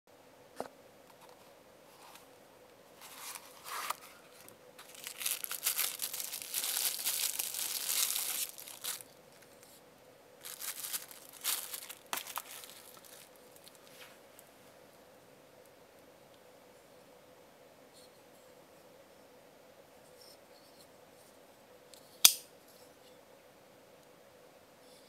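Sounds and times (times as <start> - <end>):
plastic bag crinkling: 3.0 - 9.2, 10.4 - 13.9.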